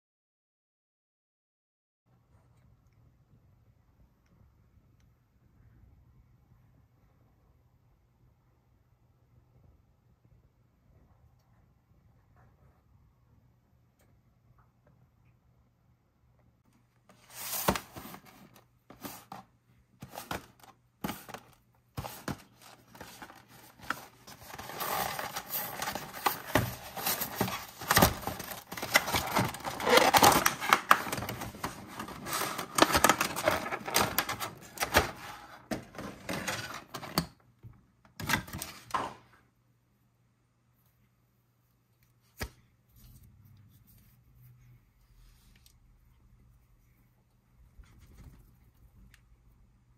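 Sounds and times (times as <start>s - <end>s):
plastic packaging crinkling and tearing: 20.1s - 37.0s.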